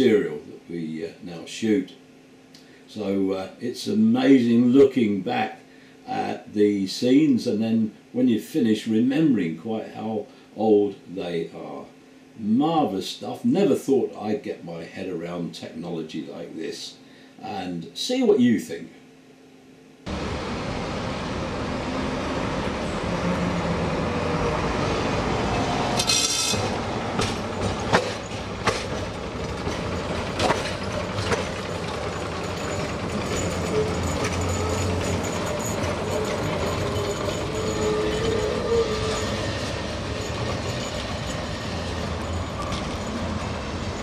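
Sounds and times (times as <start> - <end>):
tram rumbling on rails: 20.1 - 44.0.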